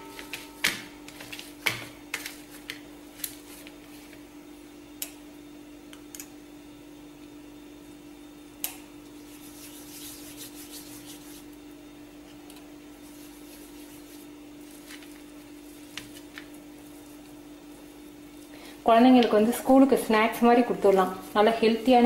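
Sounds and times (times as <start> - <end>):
steady low hum: 0.0 - 22.0
hands rubbing and squishing mixture: 9.2 - 11.6, 13.0 - 18.6, 20.6 - 22.0.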